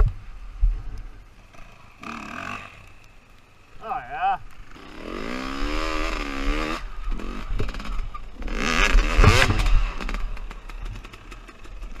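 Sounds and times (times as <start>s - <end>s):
dirt bike engine revving: 1.5s - 3.0s, 4.6s - 12.0s.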